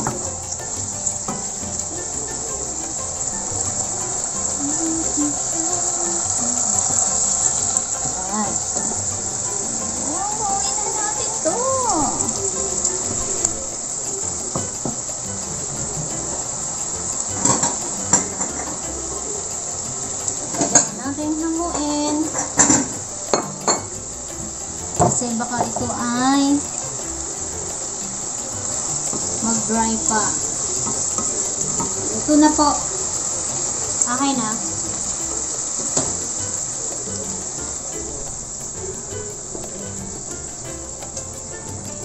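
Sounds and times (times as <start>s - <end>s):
sauce sizzling in a wok: 0.0s - 42.0s
wooden spatula knocking on pan: 14.5s - 15.0s.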